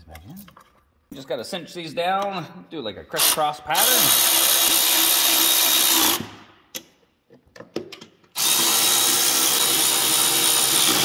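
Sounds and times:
power ratchet whirring: 0:03.2 - 0:06.4, 0:08.4 - 0:11.0.

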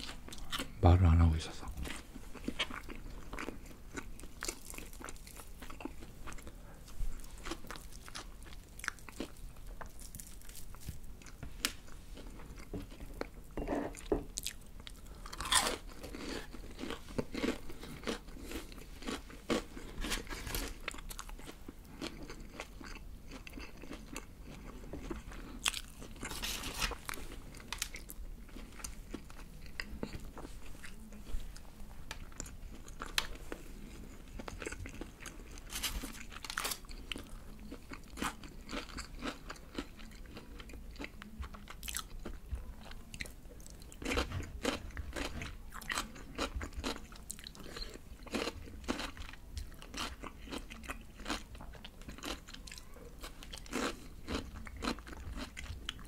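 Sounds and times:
fried chicken crunching: 0:14.4 - 0:28.9, 0:37.9 - 0:41.1.

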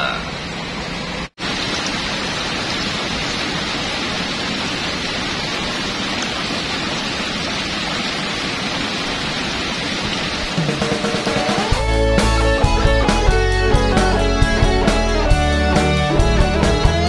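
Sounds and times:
steady rain: 0:01.2 - 0:11.9.

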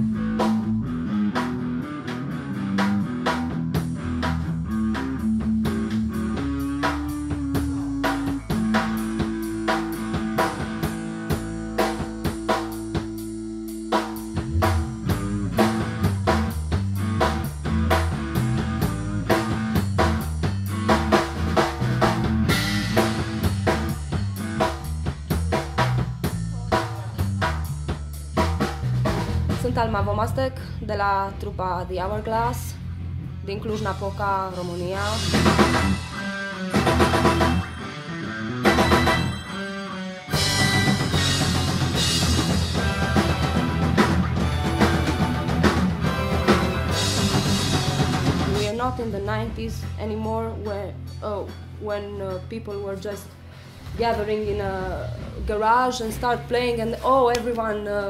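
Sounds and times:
metal music drums and guitar: 0:00.0 - 0:29.9, 0:33.8 - 0:49.3.

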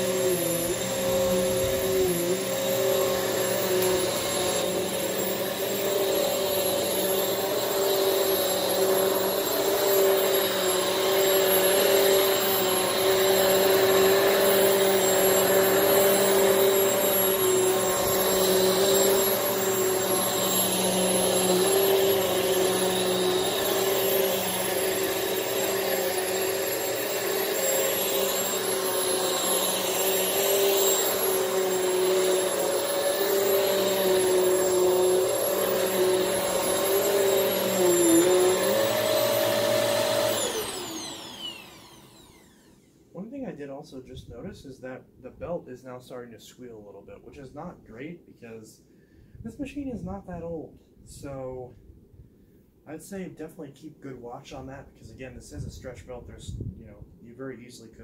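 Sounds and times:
vacuum cleaner motor whine: 0:00.0 - 0:43.0.

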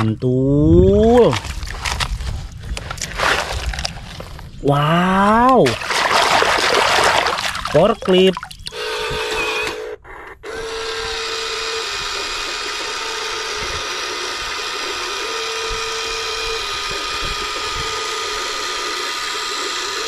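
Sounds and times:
toy electric motor whining: 0:08.7 - 0:20.0.

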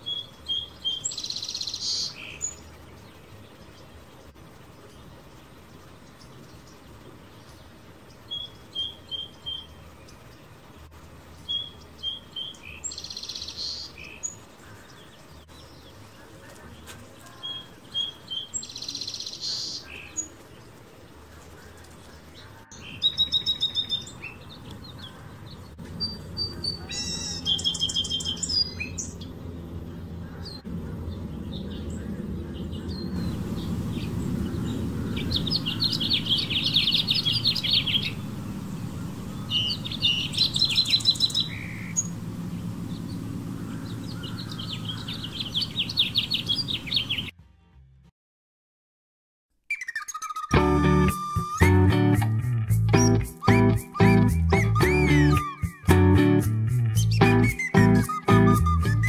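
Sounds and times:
songbirds chirping and trilling: 0:00.0 - 0:47.3, 0:49.7 - 0:59.0
low background rumble: 0:28.4 - 0:46.8.

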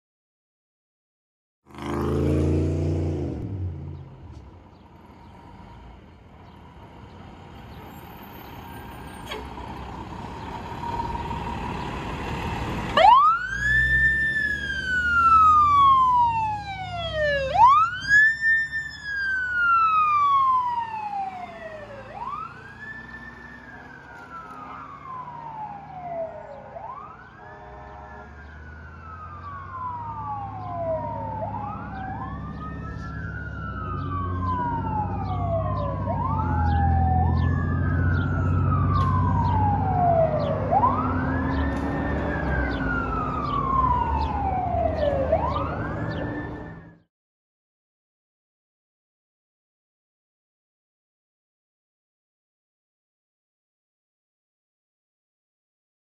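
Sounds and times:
fire truck engine rumbling: 0:04.0 - 0:47.0
siren wailing: 0:12.9 - 0:47.0.

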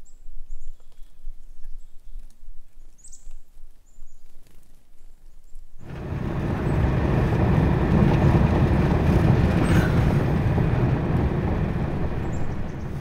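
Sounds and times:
vehicle road and engine rumble: 0:05.8 - 0:13.0.

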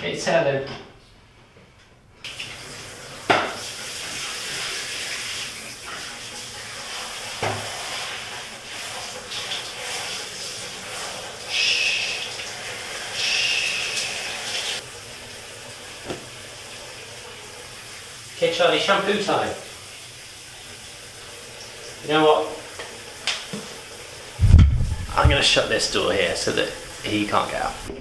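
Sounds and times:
shower spray hissing: 0:02.3 - 0:17.1, 0:23.6 - 0:28.0
sharp knocks: 0:24.4 - 0:25.6.

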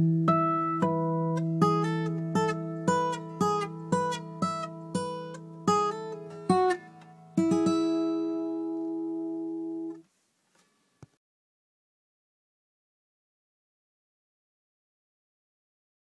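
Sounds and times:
acoustic guitar: 0:00.0 - 0:11.1.

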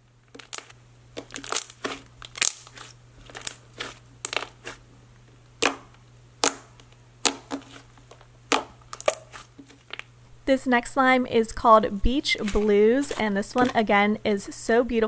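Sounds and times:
slime squelching and popping: 0:00.3 - 0:04.8, 0:05.6 - 0:07.9, 0:08.5 - 0:10.1.

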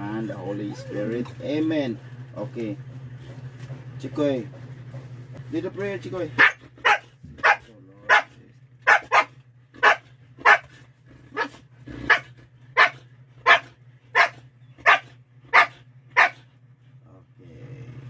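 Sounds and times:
dog barking: 0:06.4 - 0:16.5.

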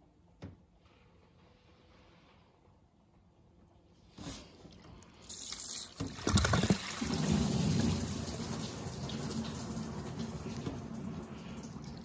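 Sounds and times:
coolant pouring out: 0:05.1 - 0:12.0.

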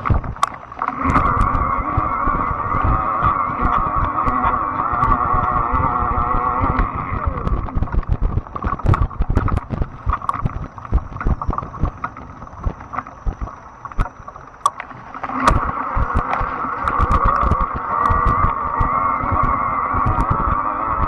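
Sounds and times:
tyres rumbling on dirt: 0:00.0 - 0:12.8, 0:15.3 - 0:21.0
electric motor whine: 0:00.0 - 0:21.0.

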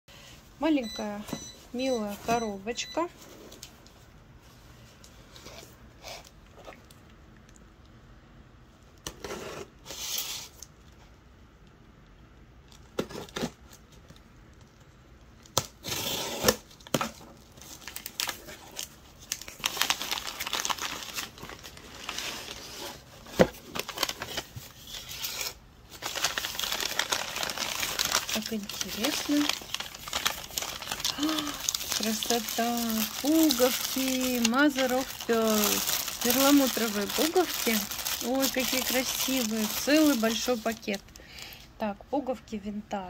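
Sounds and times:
packing paper crinkling: 0:15.4 - 0:41.6
packing tape tearing: 0:15.5 - 0:17.1, 0:23.7 - 0:40.9.

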